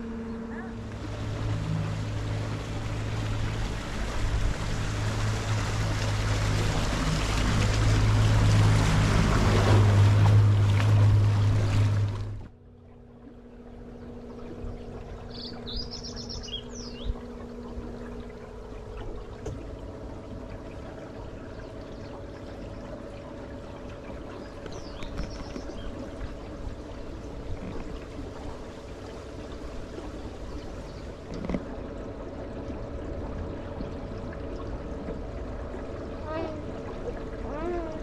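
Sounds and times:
boat motor humming: 0:00.0 - 0:38.0
water moving past boat: 0:00.0 - 0:38.0
bird chirping: 0:15.3 - 0:17.2.

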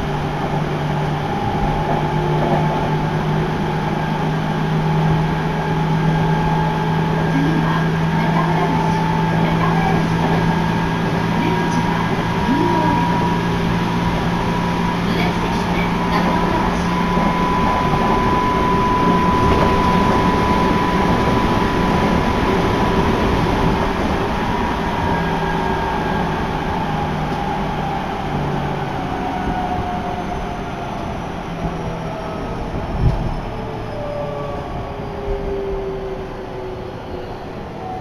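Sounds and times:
train rumble: 0:00.0 - 0:38.0.

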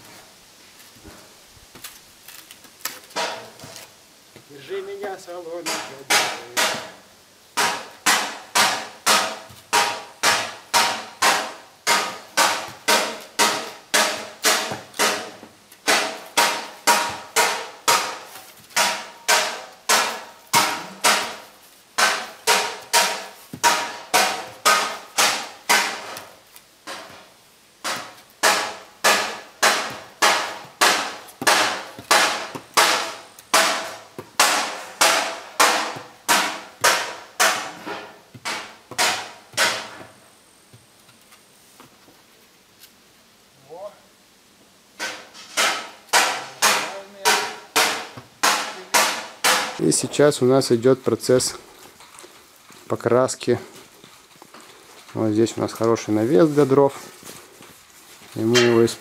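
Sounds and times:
ringing hammer blows: 0:58.5 - 0:59.0.

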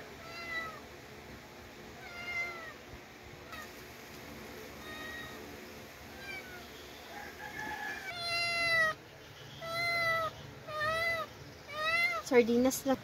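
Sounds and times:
pet crying: 0:00.2 - 0:00.8, 0:02.0 - 0:02.8, 0:04.8 - 0:05.5, 0:06.1 - 0:06.7, 0:08.0 - 0:09.0, 0:09.6 - 0:12.3.

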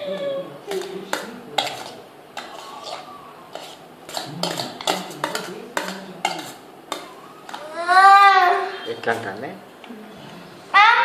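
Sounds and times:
spoon clinking on metal plate: 0:00.7 - 0:07.6.

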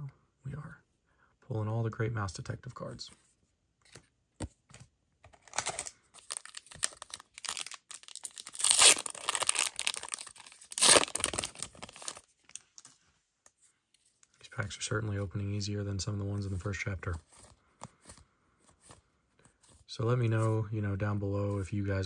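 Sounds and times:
wrapper tearing and crinkling: 0:05.4 - 0:12.8.

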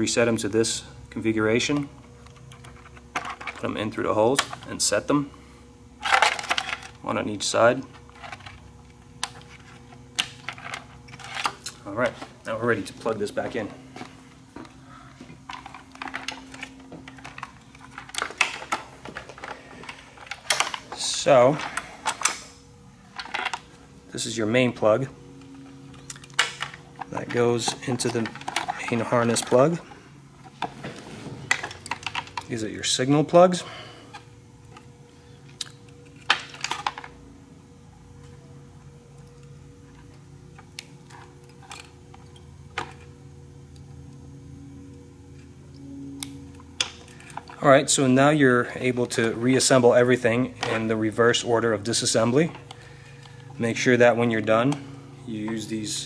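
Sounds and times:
low background hum: 0:00.0 - 0:56.0
plastic parts clicking and rattling: 0:15.5 - 0:21.0, 0:23.2 - 0:23.7, 0:26.0 - 0:29.6, 0:31.5 - 0:32.5.

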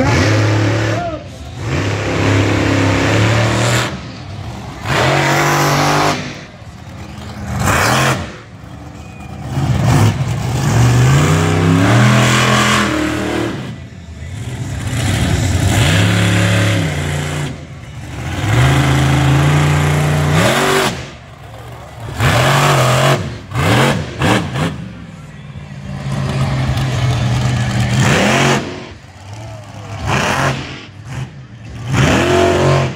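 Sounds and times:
truck engine revving: 0:00.0 - 0:32.9.

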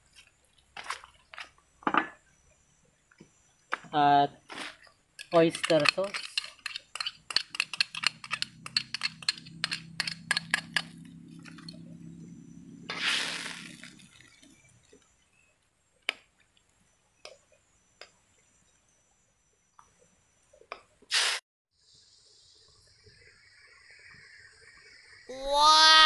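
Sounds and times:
low steady hum: 0:07.3 - 0:16.0
short hiss: 0:12.9 - 0:13.9, 0:21.1 - 0:21.4.

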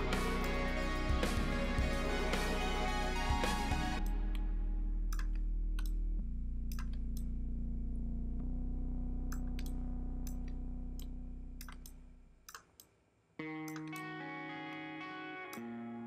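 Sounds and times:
music of sustained low chords: 0:00.0 - 0:12.2
sharp clicks: 0:05.1 - 0:06.0, 0:06.7 - 0:07.3, 0:09.3 - 0:13.0, 0:13.6 - 0:14.1.

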